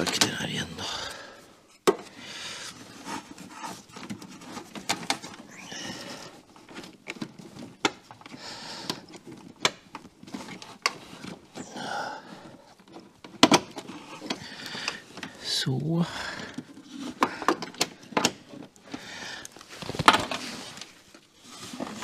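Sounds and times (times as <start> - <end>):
person breathing: 0.8 - 3.1, 5.4 - 6.5, 8.3 - 9.2, 11.6 - 12.8, 14.2 - 15.4, 16.0 - 18.2, 18.8 - 19.7.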